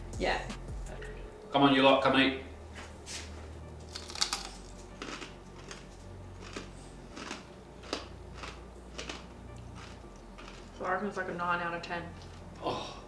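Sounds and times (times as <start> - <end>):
crisp crunches of chewing: 3.9 - 10.8.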